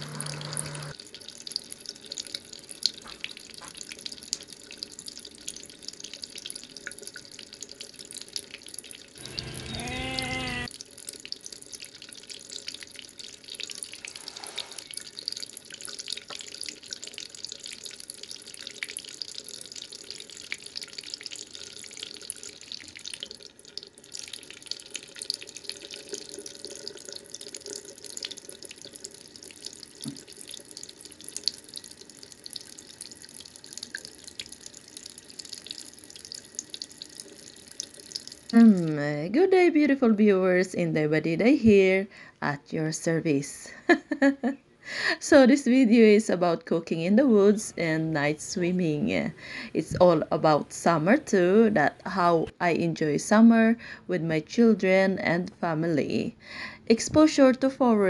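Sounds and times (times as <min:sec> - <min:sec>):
water dripping: 0:00.0 - 0:39.1
brief cry: 0:09.4 - 0:10.7.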